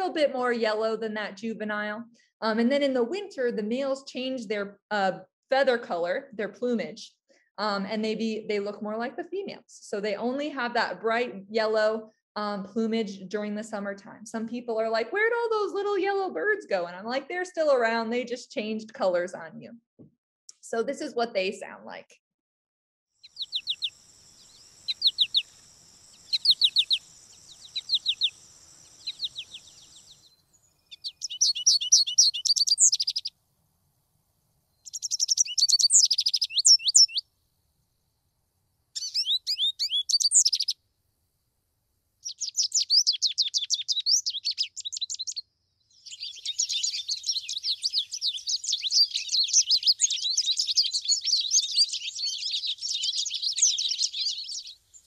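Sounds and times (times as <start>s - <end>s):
goldfinch song warble: 23.2s - 33.3s, 34.8s - 37.2s, 39.0s - 40.8s, 42.2s - 55.0s
goldfinch twittering: 23.3s - 23.9s, 24.8s - 25.5s, 26.1s - 30.3s, 30.9s - 33.3s, 34.8s - 37.2s, 39.0s - 40.8s, 42.2s - 45.4s, 46.0s - 54.7s
goldfinch flight calls: 24.8s - 25.5s, 26.2s - 28.3s, 31.0s - 33.3s.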